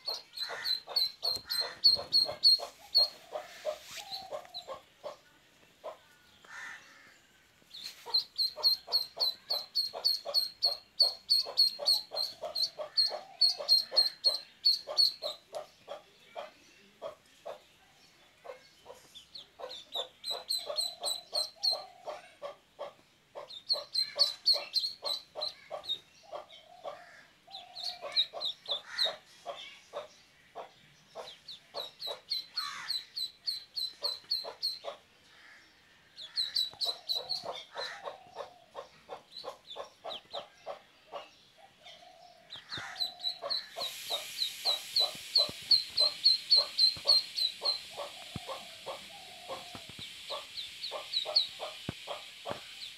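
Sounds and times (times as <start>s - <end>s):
duckling peeping: 0.0s - 5.2s, 7.7s - 16.5s, 18.4s - 35.0s, 36.2s - 41.2s, 42.5s - 52.9s
steady hiss: 42.6s - 52.9s
low rapid pulsed calls: 43.3s - 52.9s.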